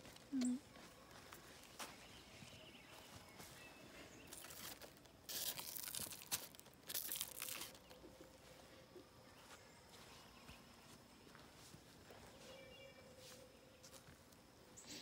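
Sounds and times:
leaves rustling: 0:01.2 - 0:08.6.

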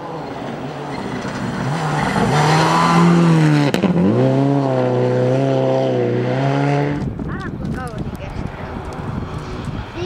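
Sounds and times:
rally car engine revving: 0:00.0 - 0:07.2.

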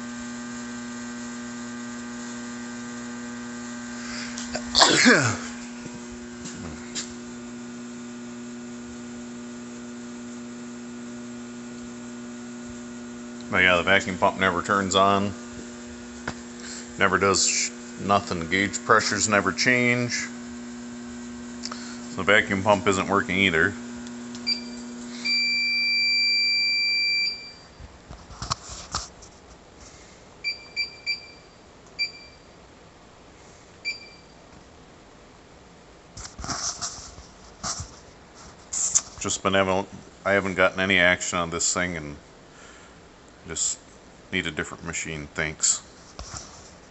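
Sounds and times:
machine humming: 0:00.0 - 0:26.0
steady electrical buzz: 0:00.0 - 0:46.9
long beep: 0:24.4 - 0:27.8, 0:30.4 - 0:32.5.

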